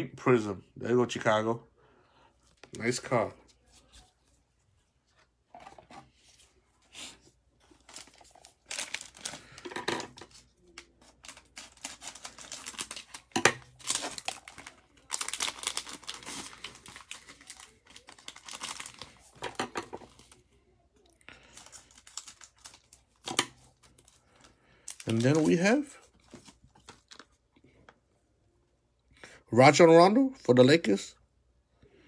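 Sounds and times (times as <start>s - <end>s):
plastic wrappers crinkling and tearing: 7.6s - 27.5s.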